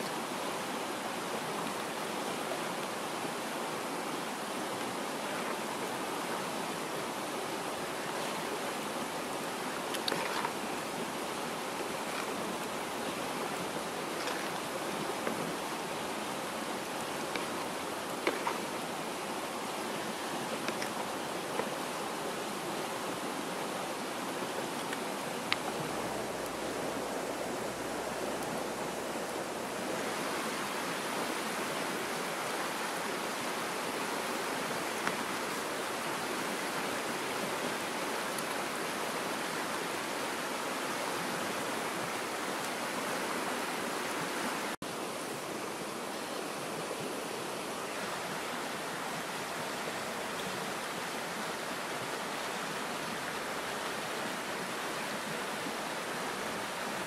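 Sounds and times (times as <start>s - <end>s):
curry hissing and bubbling: 24.7s - 31.1s
faint clicks: 24.8s - 26.6s.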